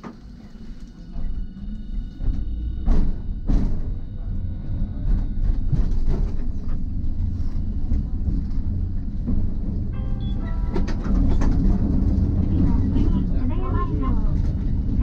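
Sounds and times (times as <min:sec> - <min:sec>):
tram wheels and motors rumbling: 0:00.0 - 0:15.0
high ringing tone: 0:09.9 - 0:10.9.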